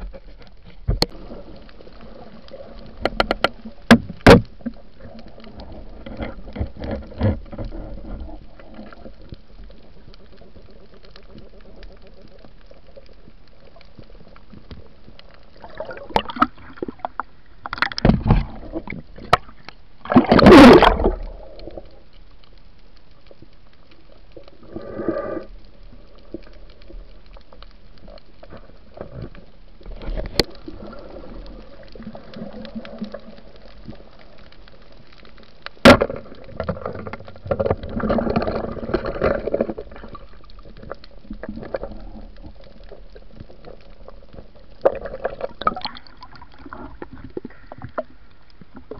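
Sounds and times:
water gurgling underwater: 0:00.0 - 0:22.3, 0:23.2 - 0:48.9
steady hiss: 0:21.0 - 0:36.5.

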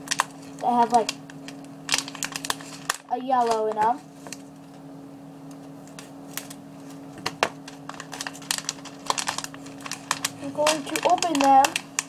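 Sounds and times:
plastic bag of beads crinkling: 0:00.0 - 0:03.8, 0:07.6 - 0:12.0
steady low hum: 0:00.0 - 0:12.0.

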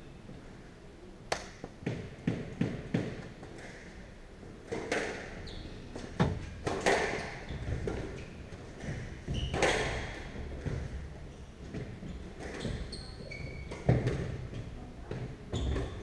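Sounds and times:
shoes squeaking on wooden floor: 0:07.4 - 0:10.9, 0:11.9 - 0:14.4, 0:15.5 - 0:16.0.

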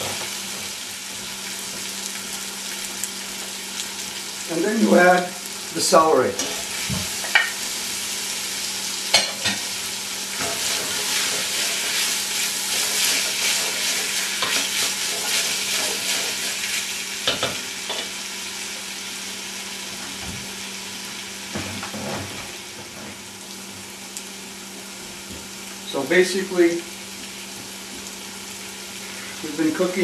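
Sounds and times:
vegetables sizzling in oil: 0:00.0 - 0:30.0.

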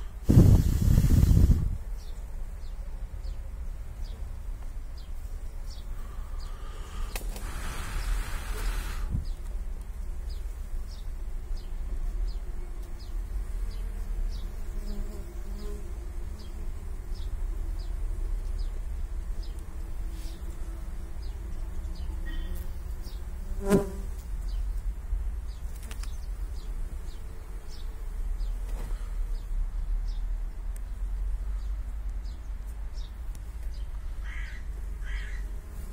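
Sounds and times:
bee buzzing close past: 0:00.0 - 0:02.1, 0:05.8 - 0:24.9, 0:26.1 - 0:29.5, 0:34.4 - 0:35.9
bees buzzing: 0:04.0 - 0:30.2.

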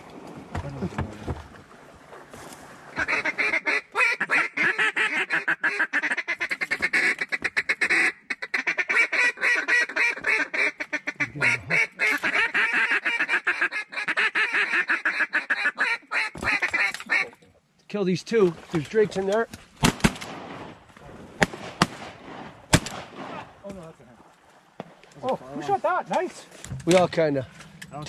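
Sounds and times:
duck quacking: 0:03.0 - 0:17.4.

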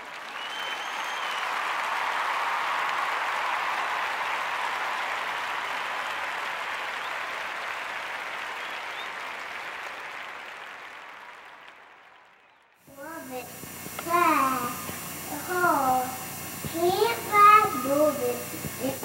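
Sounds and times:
crowd applauding: 0:00.0 - 0:19.0.

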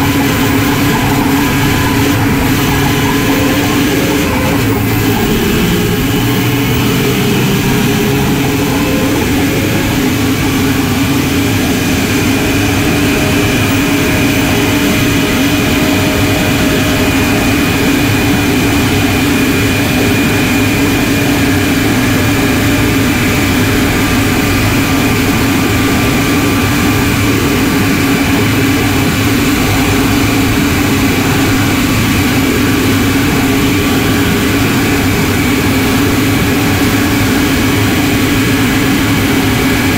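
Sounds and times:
turbo whistle: 0:00.0 - 0:10.2
diesel engine drone: 0:00.0 - 0:39.9.

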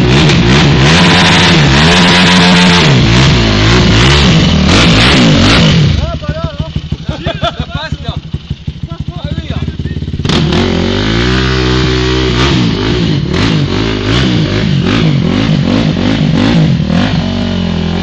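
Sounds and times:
quad engine revving: 0:00.0 - 0:18.0.

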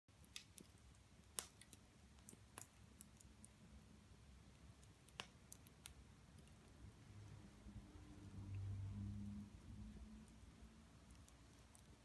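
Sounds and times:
wood fire crackling: 0:00.1 - 0:12.0.

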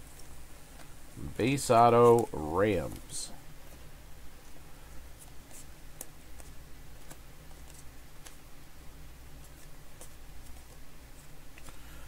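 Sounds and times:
steady low hum: 0:00.0 - 0:12.0
cards clicking and flicking: 0:00.1 - 0:03.9, 0:05.2 - 0:08.5, 0:09.4 - 0:11.8.

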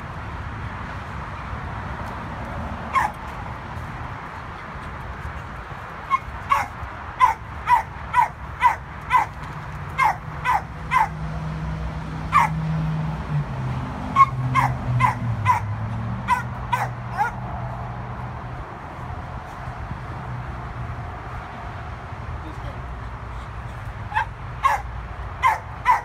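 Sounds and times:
dog barking: 0:02.9 - 0:03.2, 0:06.1 - 0:09.3, 0:10.0 - 0:11.2, 0:12.3 - 0:12.6, 0:14.2 - 0:17.4, 0:24.1 - 0:26.0.

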